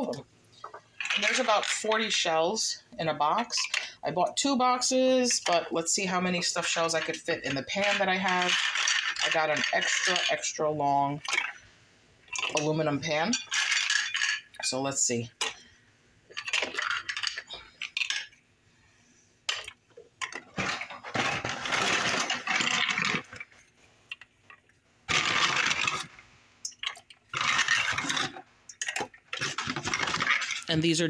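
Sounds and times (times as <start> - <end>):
pasta shells handled by hand: 19.5 - 30.7.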